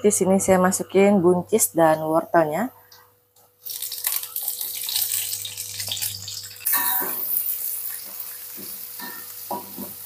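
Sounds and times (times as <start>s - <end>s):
vegetables sizzling in hot oil: 3.6s - 10.0s.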